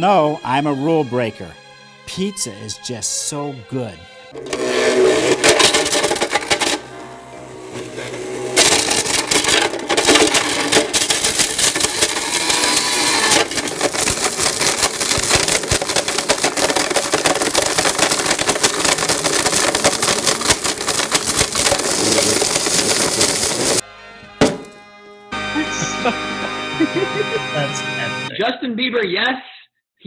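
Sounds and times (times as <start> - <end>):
blender smashing hard plastic: 4.4 - 23.8, 24.4 - 24.8
plastic shards cracking: 5.2 - 7.0, 8.0 - 24.8.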